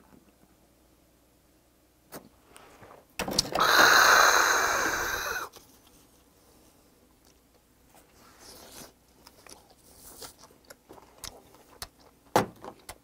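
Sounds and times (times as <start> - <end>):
close-up chewing: 8.7 - 13.0.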